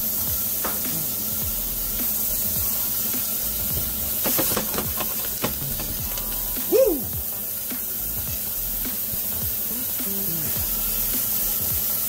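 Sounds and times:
oil spitting crackles: 0.0 - 12.0
onion sizzling in hot oil: 0.0 - 12.0.

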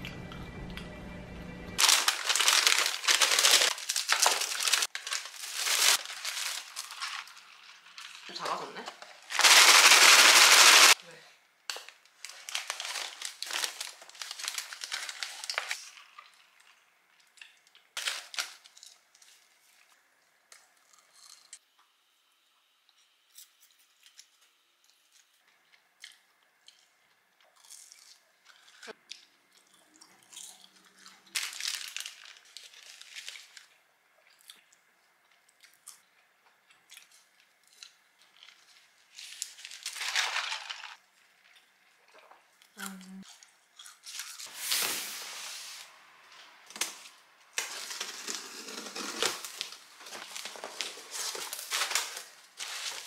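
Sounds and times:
paper wrapper crinkling: 1.8 - 11.0, 11.7 - 16.2, 18.0 - 19.6, 31.3 - 33.7, 38.2 - 41.0, 46.7 - 53.0
quiet chewing: 22.9 - 31.4, 33.5 - 39.0.

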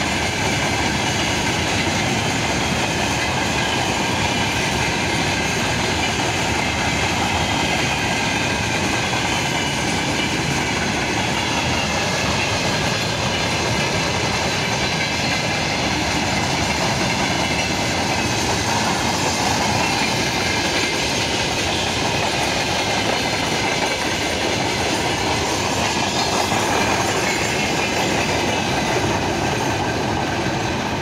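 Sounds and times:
train wheels clattering on rails: 0.0 - 31.0.

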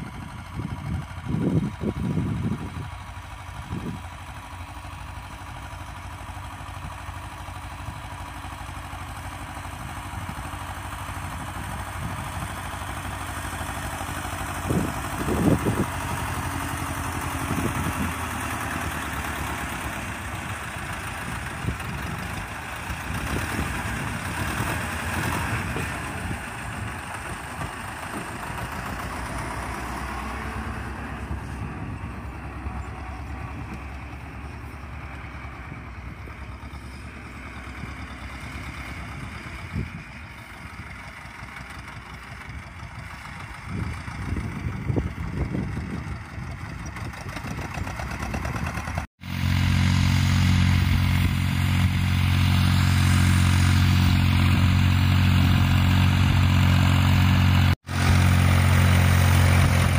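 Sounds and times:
tractor diesel engine steady: 0.0 - 59.9
tractor diesel engine under load: 0.0 - 59.9.

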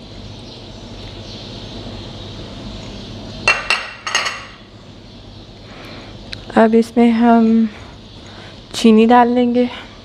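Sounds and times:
steady low hum: 0.0 - 10.0
glass dishware clinking: 3.5 - 4.6.

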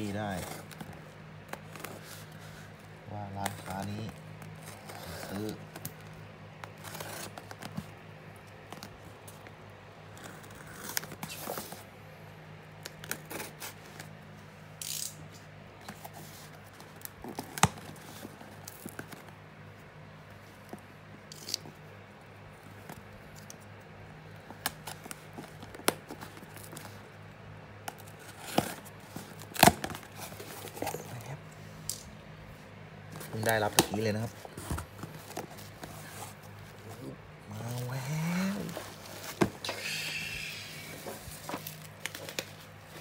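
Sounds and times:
packing tape tearing: 3.3 - 7.9, 10.1 - 11.8, 12.8 - 14.1, 14.8 - 19.3, 21.3 - 21.8, 27.8 - 32.1, 33.2 - 43.0
cardboard box handling scrapes: 33.2 - 41.8.

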